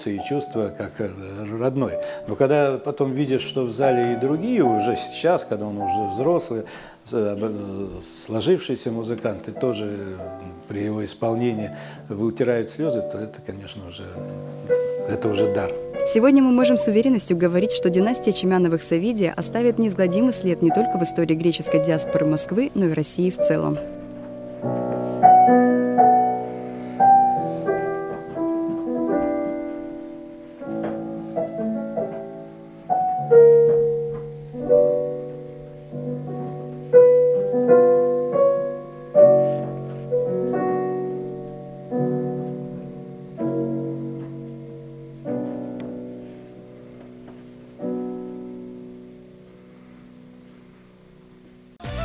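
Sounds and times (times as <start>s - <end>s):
slow piano piece: 0.0s - 52.0s.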